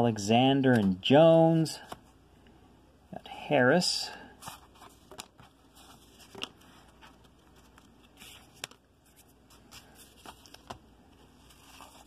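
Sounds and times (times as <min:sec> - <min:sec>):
trading cards rustling and clicking: 0:04.4 - 0:12.0.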